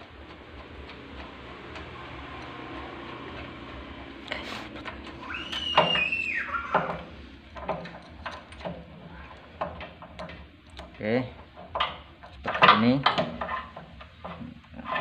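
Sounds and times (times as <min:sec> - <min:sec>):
metal clicks knocks and scrapes: 0:00.0 - 0:05.2, 0:06.7 - 0:15.0
high squeak: 0:05.2 - 0:07.0.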